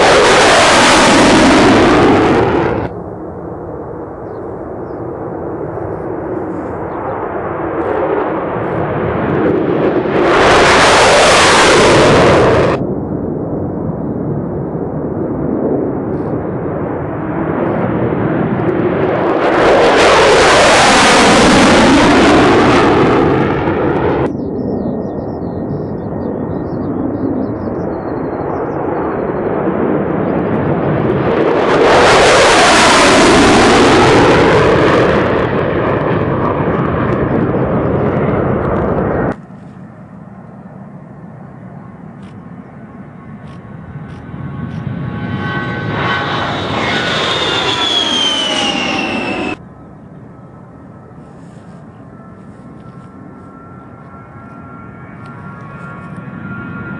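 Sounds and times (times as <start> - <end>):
fighter jets taking off: 0.0 - 56.9
jet engines whining: 0.0 - 56.9.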